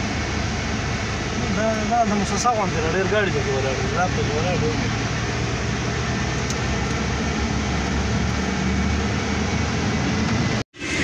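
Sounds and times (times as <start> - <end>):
road and wind rush: 0.0 - 11.0
truck engine drone: 0.0 - 11.0.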